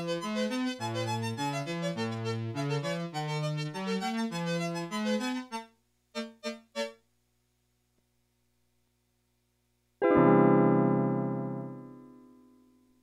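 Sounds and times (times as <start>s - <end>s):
electronic keyboard melody: 0.0s - 7.0s, 10.0s - 12.5s.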